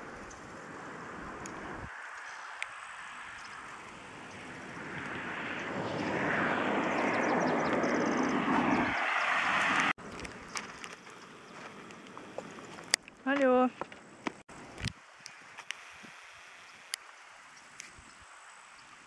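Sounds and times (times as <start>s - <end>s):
passing vehicle engine: 0.6s - 10.0s.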